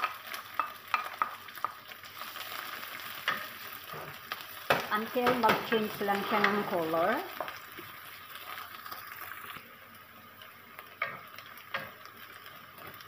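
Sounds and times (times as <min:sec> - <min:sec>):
food sizzling in oil: 0:00.0 - 0:13.0
spatula scraping a pan: 0:05.4 - 0:07.1.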